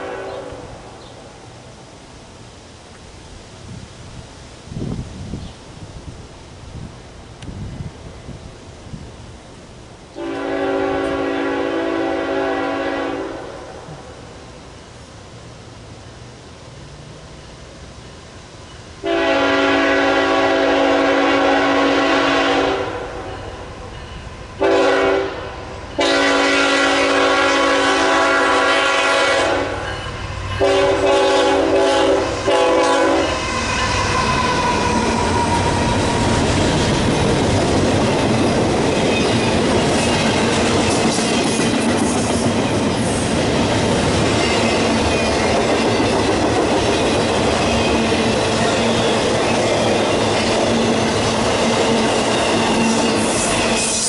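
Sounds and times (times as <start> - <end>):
locomotive air horn blasts: 0.0 - 0.6, 10.2 - 13.8, 19.0 - 23.3, 24.6 - 35.7
train rumbling past: 0.0 - 54.0
wheels clacking on rails: 22.9 - 25.1, 29.6 - 54.0.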